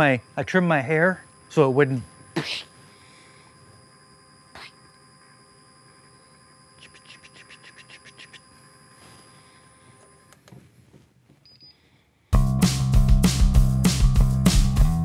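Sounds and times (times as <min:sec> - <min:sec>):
drill press motor whine: 0:00.0 - 0:10.6.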